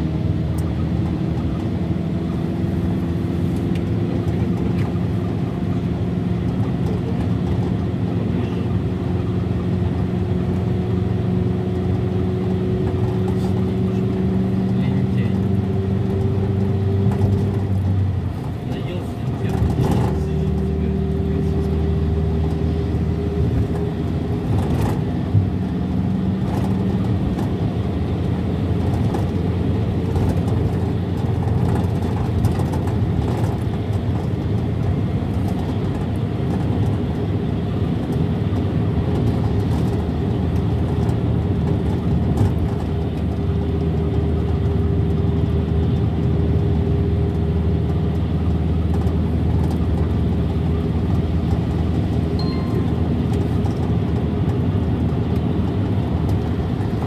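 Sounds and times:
tyre and road noise: 0.0 - 57.0
vehicle engine hum: 0.0 - 57.0.

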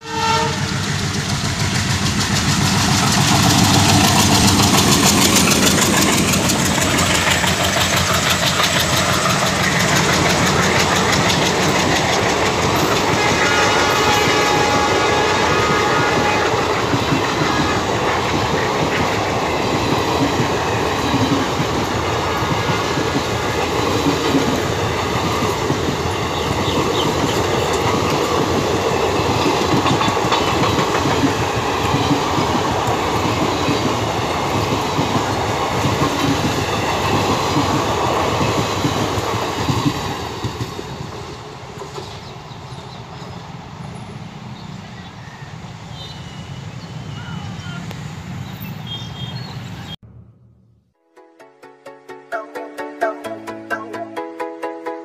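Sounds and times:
train horn: 0.0 - 0.9, 12.8 - 17.8, 22.0 - 23.2
diesel locomotive engines chugging: 0.0 - 50.0
wheels clacking over rail joints: 0.3 - 44.1.

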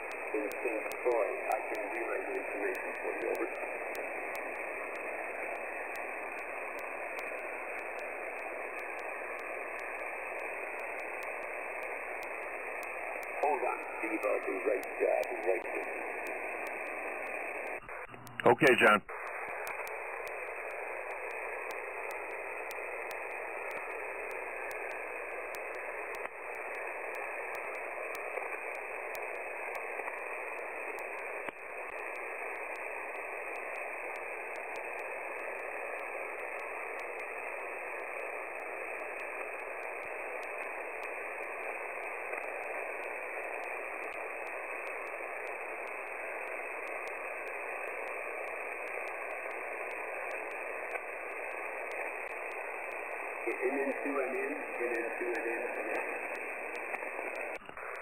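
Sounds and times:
radio static hiss: 0.0 - 58.0.

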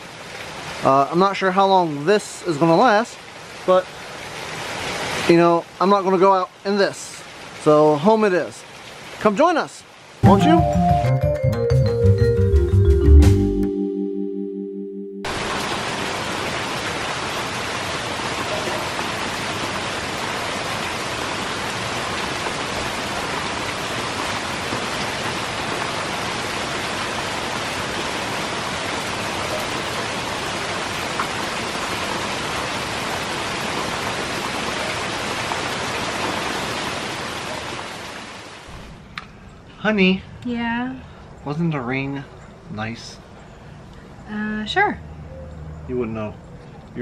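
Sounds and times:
heavy rain pouring: 0.0 - 13.4, 15.3 - 39.2.

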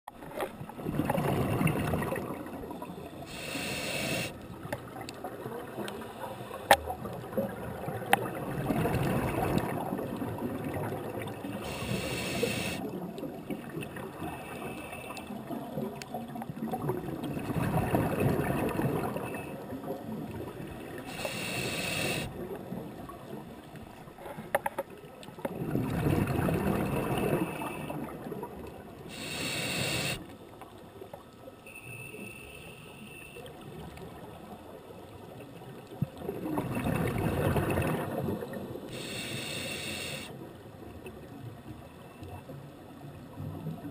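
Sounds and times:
bubbling exhale underwater: 0.8 - 2.6, 7.0 - 14.4, 16.6 - 20.4, 25.5 - 30.2, 36.2 - 40.2
hissing inhale through regulator: 3.2 - 4.4, 11.6 - 12.9, 14.3 - 15.4, 21.0 - 22.3, 29.1 - 30.3, 38.9 - 40.4.

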